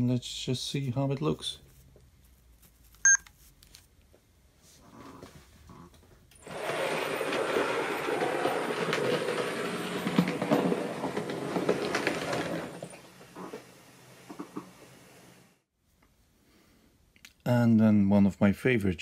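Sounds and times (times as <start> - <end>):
model train wheels clattering: 6.4 - 13.3.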